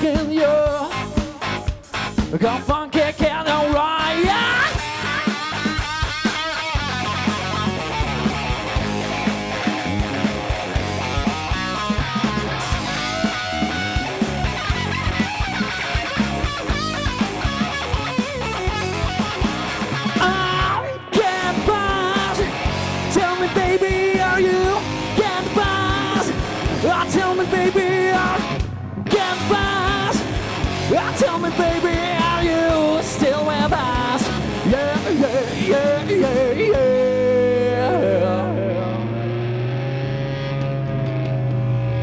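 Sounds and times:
person singing: 0:00.0 - 0:01.7, 0:02.3 - 0:05.5, 0:20.1 - 0:39.3
bass: 0:00.0 - 0:42.0
drums: 0:00.0 - 0:42.0
electric guitar: 0:00.0 - 0:42.0.

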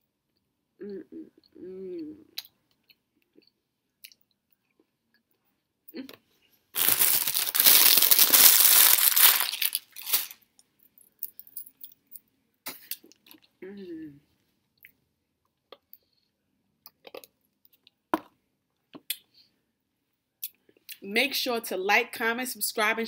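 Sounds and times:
loud crunching crackling noise: 0:06.8 - 0:10.4.

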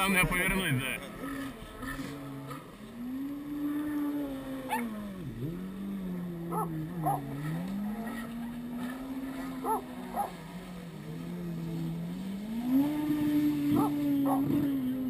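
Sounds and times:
jet ski engine running: 0:00.0 - 0:15.0.

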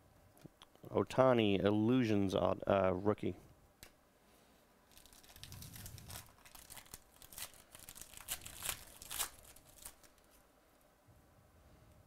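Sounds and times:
foil pack tearing and crinkling: 0:04.9 - 0:10.4.

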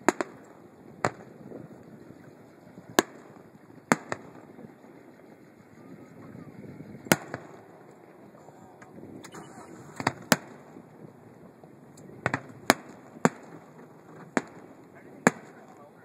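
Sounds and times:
fireworks bursting in sharp bangs: 0:00.0 - 0:01.6, 0:02.9 - 0:04.6, 0:07.1 - 0:07.7, 0:09.2 - 0:11.0, 0:12.1 - 0:15.8.

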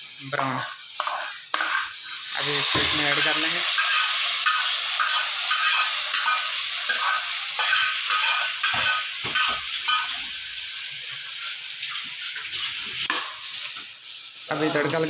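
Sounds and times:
hot oil sizzling: 0:00.0 - 0:15.0
ladle scraping pan: 0:01.0 - 0:10.2.

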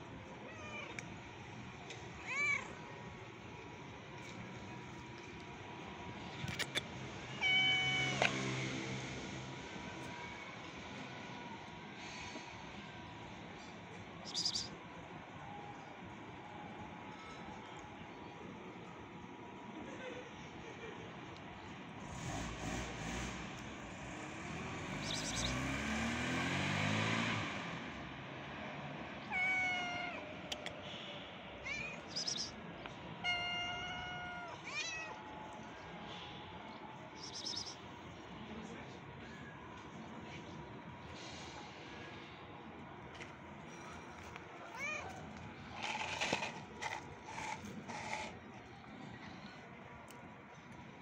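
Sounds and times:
vehicle passing by: 0:07.2 - 0:11.1, 0:22.0 - 0:29.1
cat meowing: 0:07.3 - 0:08.2, 0:29.2 - 0:30.2, 0:33.2 - 0:35.2, 0:44.7 - 0:45.2
scratchy noises: 0:45.6 - 0:48.5.

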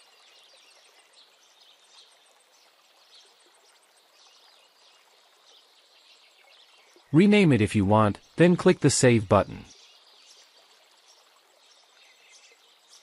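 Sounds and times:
running water: 0:00.0 - 0:13.0
birds chirping: 0:06.7 - 0:10.4.

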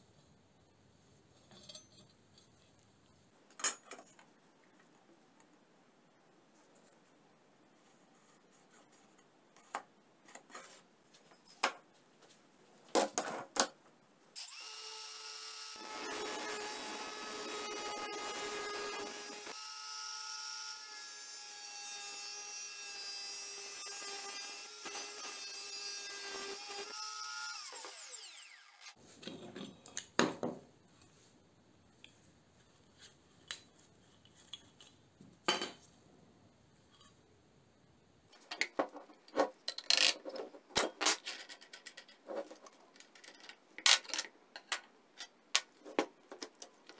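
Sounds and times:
angle grinder cutting steel: 0:14.4 - 0:29.0.

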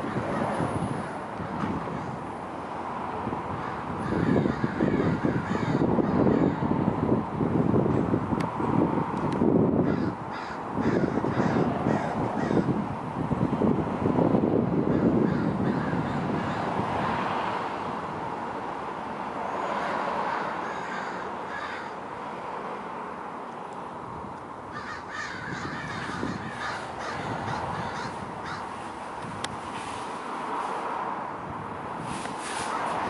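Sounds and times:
crows cawing: 0:00.0 - 0:02.2, 0:03.6 - 0:06.6, 0:09.8 - 0:12.7, 0:14.9 - 0:16.7, 0:20.1 - 0:22.0, 0:24.7 - 0:28.8.

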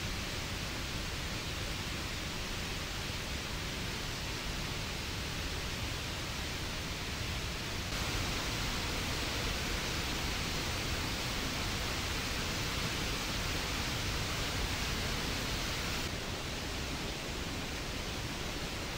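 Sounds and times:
waterfall rushing: 0:07.9 - 0:18.9.

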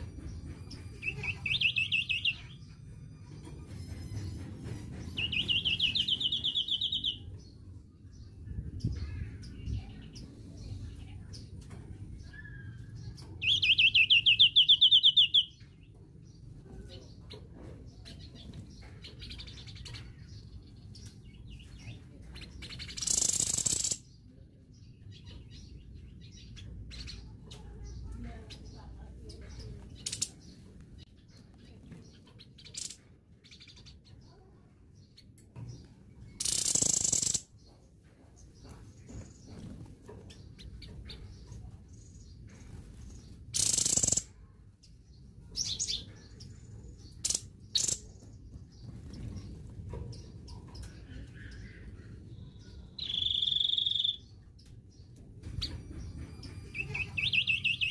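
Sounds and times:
songbird chirping: 0:00.0 - 0:57.9.

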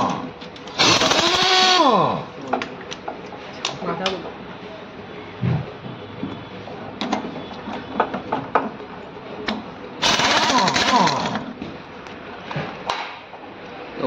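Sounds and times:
impact wrench hammering: 0:10.0 - 0:11.4.

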